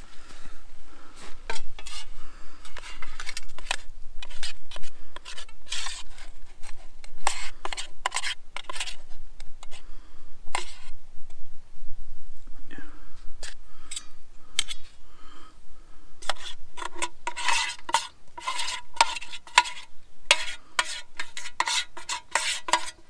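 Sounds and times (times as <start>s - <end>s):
metal spoon scraping mess tin: 1.5s - 2.1s, 2.7s - 6.3s, 7.1s - 9.0s, 10.6s - 10.9s, 16.2s - 23.0s.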